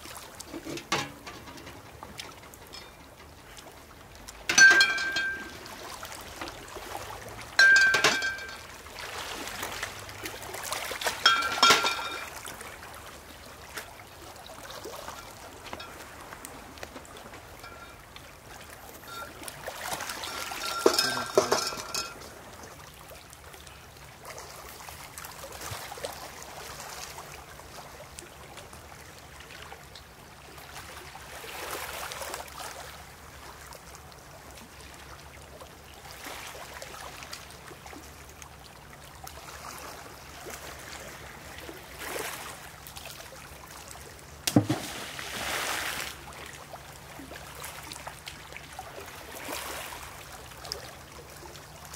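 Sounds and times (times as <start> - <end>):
waves washing on stony shore: 4.3 - 14.0, 14.6 - 22.7, 44.5 - 46.7, 48.8 - 50.4
brief clinking: 4.5 - 5.6, 20.2 - 22.2.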